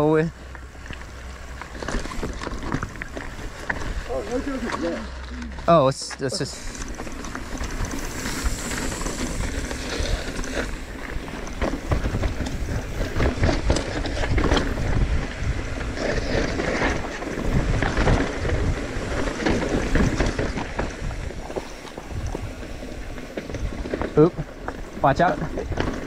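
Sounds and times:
bike rattling and knocking: 0:00.0 - 0:26.0
tyres crunching over dirt and rocks: 0:00.0 - 0:26.0
wind buffeting microphone: 0:06.7 - 0:26.0.

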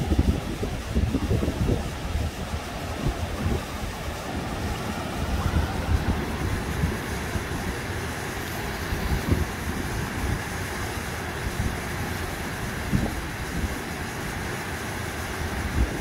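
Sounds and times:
gusty wind on microphone: 0:00.0 - 0:16.0
shallow stream rushing: 0:00.0 - 0:16.0.

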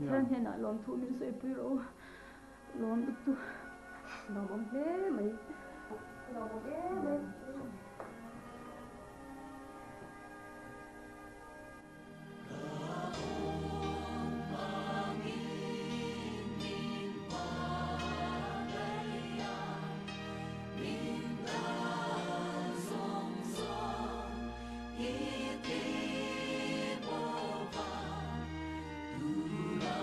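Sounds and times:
choir singing a hymn: 0:12.1 - 0:30.0.

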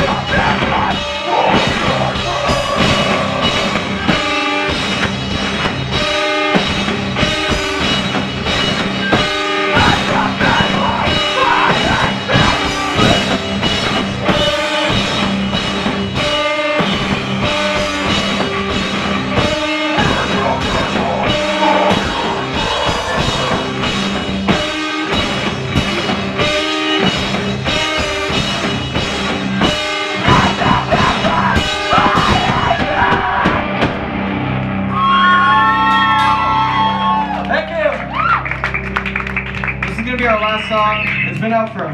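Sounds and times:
person singing: 0:00.0 - 0:04.5, 0:09.6 - 0:13.3, 0:19.8 - 0:23.8, 0:30.2 - 0:33.8
drum kit hits: 0:00.0 - 0:34.6
electric guitars: 0:00.0 - 0:41.5.

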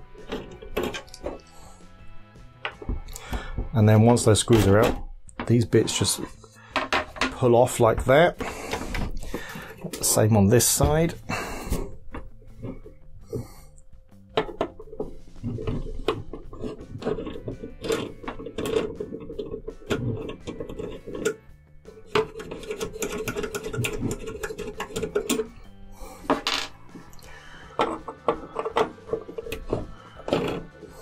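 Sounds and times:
screwdriver clicking and scraping metal: 0:00.0 - 0:01.6, 0:08.4 - 0:26.4, 0:27.0 - 0:31.0.

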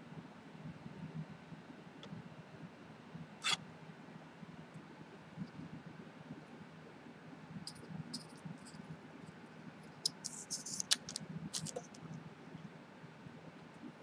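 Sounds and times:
scissors snipping: 0:10.0 - 0:12.0
plastic bag crinkling: 0:10.1 - 0:12.0.

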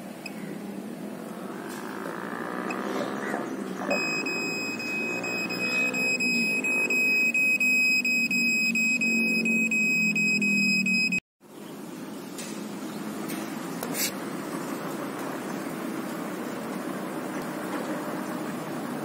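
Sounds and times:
rapid high-pitched beeping: 0:03.9 - 0:11.2.

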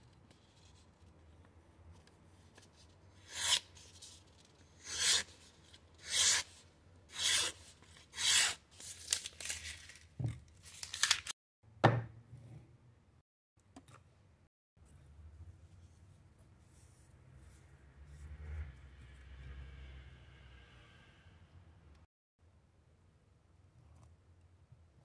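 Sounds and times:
knife slicing paper: 0:03.2 - 0:04.0.

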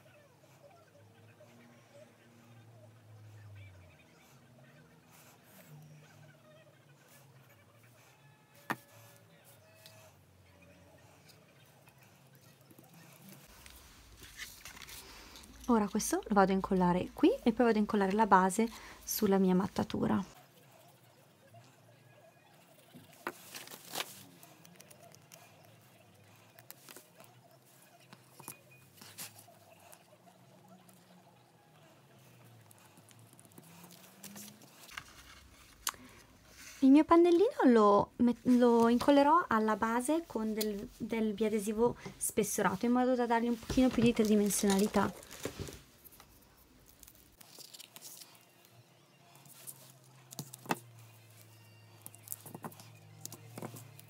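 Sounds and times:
paper rustling and scraping: 0:13.2 - 0:16.1, 0:23.0 - 0:24.8, 0:33.5 - 0:35.9, 0:42.7 - 0:48.4.

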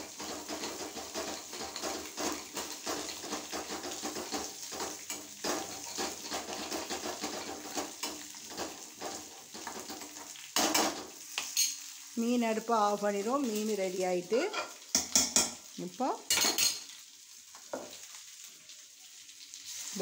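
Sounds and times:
metal spoon scraping a pan: 0:00.0 - 0:11.9
oil sizzling in a pan: 0:00.0 - 0:20.0.

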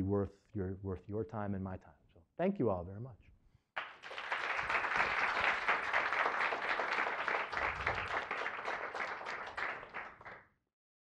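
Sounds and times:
audience applauding: 0:03.8 - 0:10.4.

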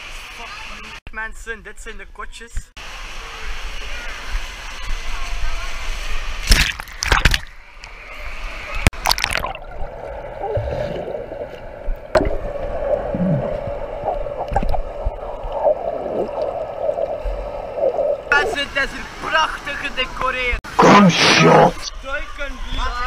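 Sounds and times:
water splashing: 0:06.4 - 0:07.6, 0:08.8 - 0:21.9
underwater gurgling and bubbling: 0:09.0 - 0:18.4.

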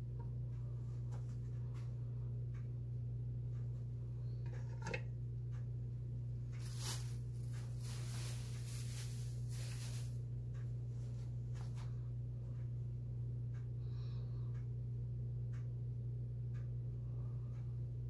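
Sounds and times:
steady low hum: 0:00.0 - 0:18.0
short rustle: 0:06.6 - 0:10.2.

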